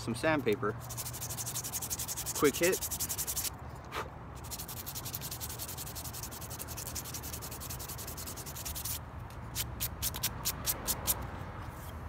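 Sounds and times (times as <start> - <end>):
sandpaper rubbing on wood: 0.1 - 3.5, 4.4 - 9.0.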